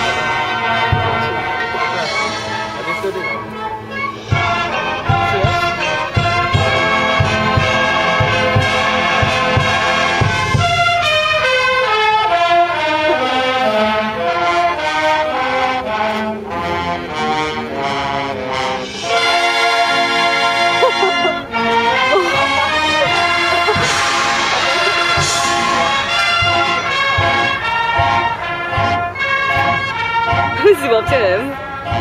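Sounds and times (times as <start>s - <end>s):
brass chords: 0.0s - 32.0s
bass drum beats: 22.1s - 29.7s.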